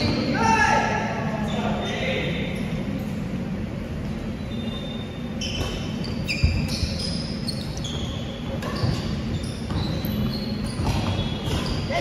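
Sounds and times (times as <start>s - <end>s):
shoes squeaking on wooden floor: 4.5s - 12.0s.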